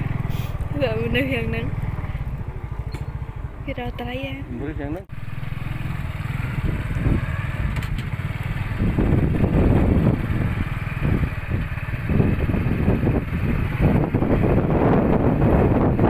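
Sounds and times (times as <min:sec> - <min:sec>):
motorcycle engine rumbling: 0:00.0 - 0:16.0
wind buffeting microphone: 0:05.8 - 0:16.0.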